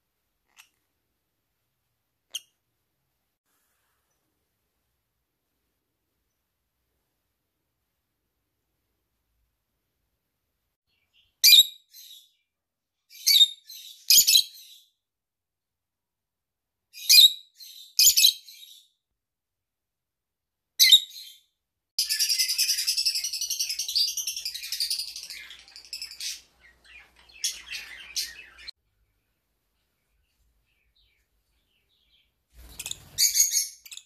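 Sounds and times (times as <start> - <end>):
lovebird chirping: 10.9 - 12.4, 13.1 - 14.9, 16.9 - 18.9, 20.8 - 28.8, 30.1 - 34.0.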